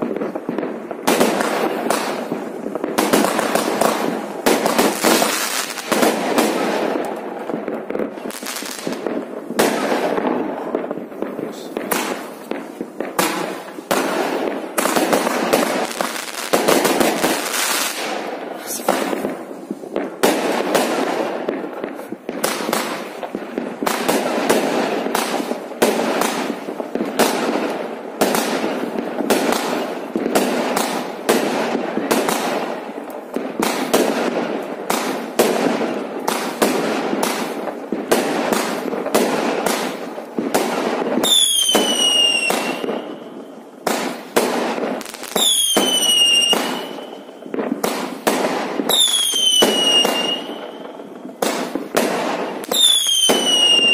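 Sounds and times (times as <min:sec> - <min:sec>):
fireworks bangs and cracks: 0:00.0 - 0:53.9
fireworks crackle: 0:00.0 - 0:53.9
falling firework whistles: 0:41.2 - 0:44.2, 0:45.0 - 0:48.1, 0:48.8 - 0:51.7, 0:52.4 - 0:53.9.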